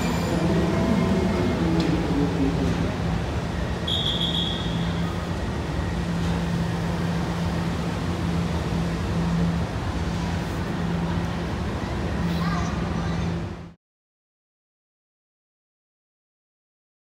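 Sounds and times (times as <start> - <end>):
metro train rumbling: 0.0 - 13.8.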